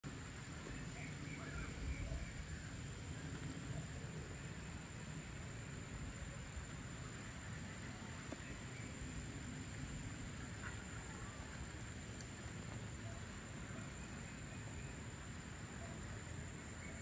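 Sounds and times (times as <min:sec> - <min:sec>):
faint bird calls: 0:00.6 - 0:04.4.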